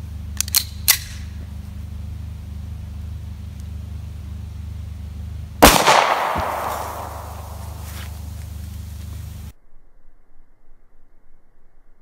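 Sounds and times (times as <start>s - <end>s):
pistol clicks: 0.4s - 1.2s, 5.6s - 7.6s
pistol shot with echo: 5.6s - 7.8s.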